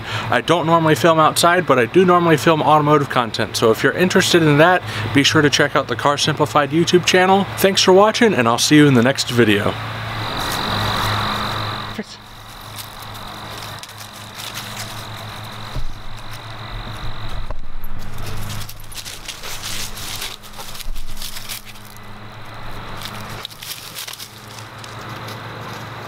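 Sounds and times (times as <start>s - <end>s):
steady high whine: 8.1s - 26.0s
low hum: 9.7s - 25.9s
dogs rustling through dry leaves: 10.0s - 26.0s.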